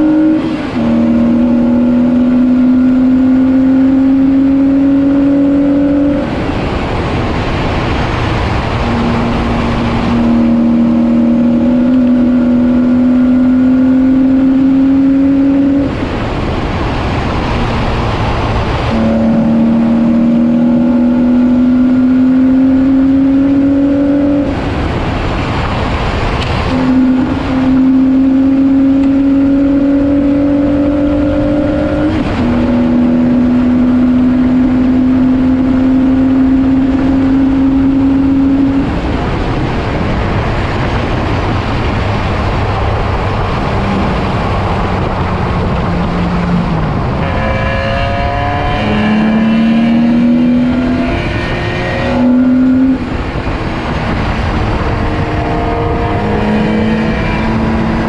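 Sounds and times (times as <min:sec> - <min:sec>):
race car engine at full throttle: 0:00.0 - 0:58.0
wind and road noise: 0:00.0 - 0:58.0.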